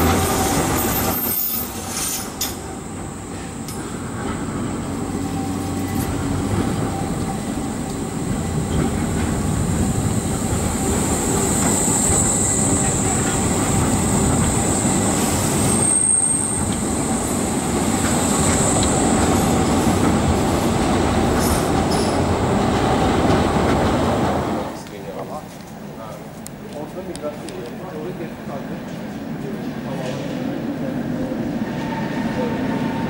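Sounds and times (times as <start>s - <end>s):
tram wheels rumbling on rails: 0.0s - 33.0s
thin high wheel squeal: 0.4s - 2.6s.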